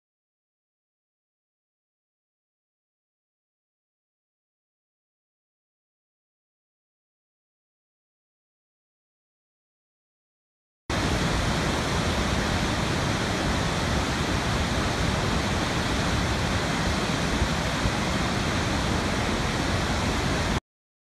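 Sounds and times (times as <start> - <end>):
waterfall rushing: 10.9 - 20.6.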